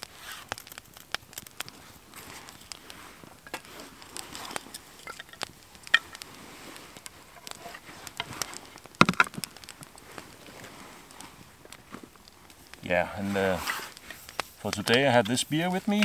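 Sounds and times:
sharp pops: 0.0s - 16.0s
wood fire crackling: 0.0s - 16.0s
wood knocks: 9.0s - 9.4s.

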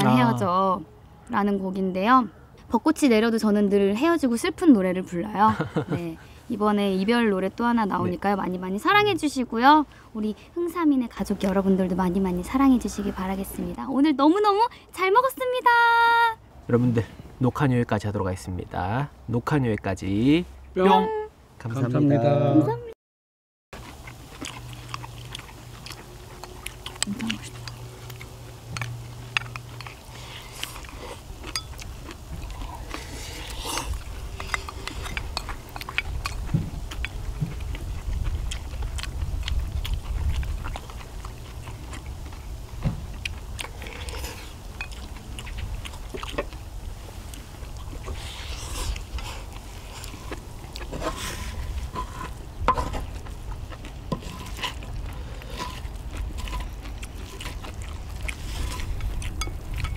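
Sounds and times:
chewing: 23.8s - 59.9s.

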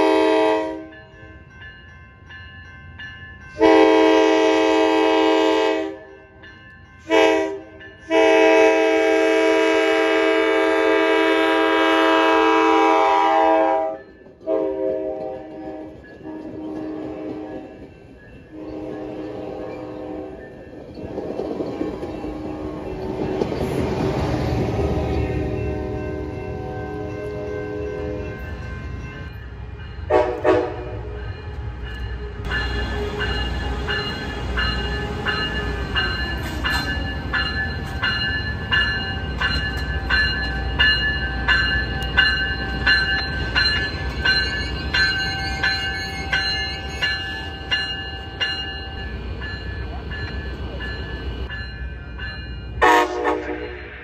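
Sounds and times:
train horn blast: 0.0s - 1.0s, 3.6s - 6.1s, 7.1s - 17.8s, 18.5s - 20.5s, 30.1s - 31.2s, 52.8s - 54.0s
crossing warning bell ringing: 0.0s - 54.0s
diesel locomotive running: 7.0s - 54.0s.

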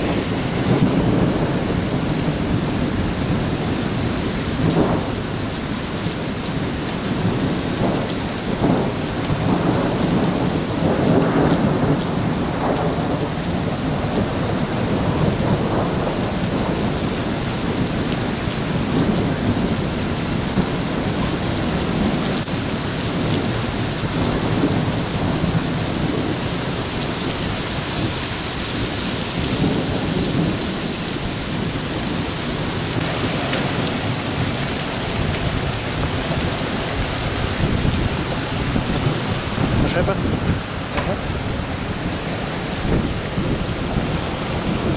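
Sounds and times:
thunder rolling: 0.0s - 5.6s, 29.4s - 44.9s
heavy rain pouring: 0.0s - 44.9s.

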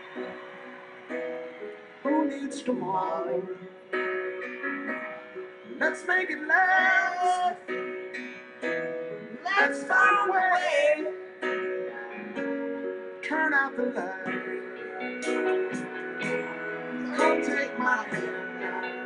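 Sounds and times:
slow ballad with guitar: 11.0s - 19.0s.

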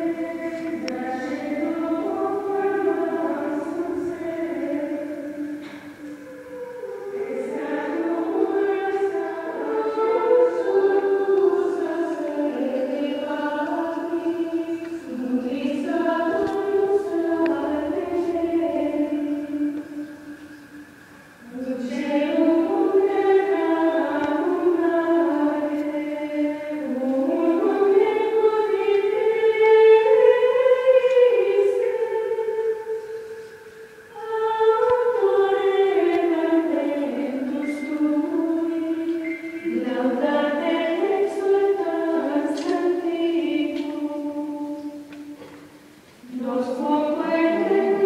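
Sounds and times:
nuns singing a hymn: 0.0s - 48.0s.

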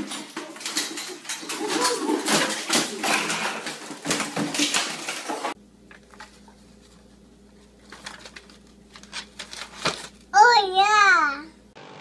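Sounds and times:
faint paper rustles: 4.6s - 10.2s
low hum: 5.6s - 10.4s.

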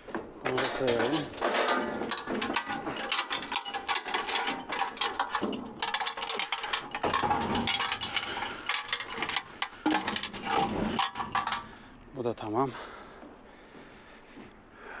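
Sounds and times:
small metal items clinking: 0.4s - 12.0s.

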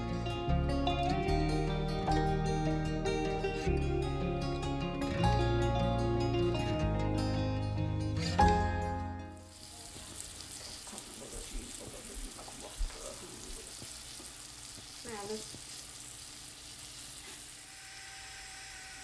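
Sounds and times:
food sizzling in oil: 9.3s - 19.0s.

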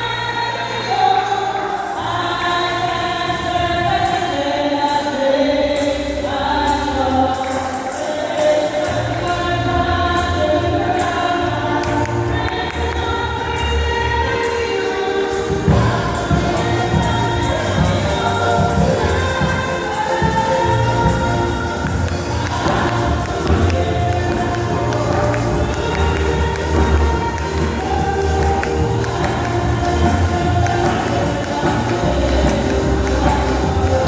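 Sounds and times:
women's choir singing: 0.0s - 34.0s.

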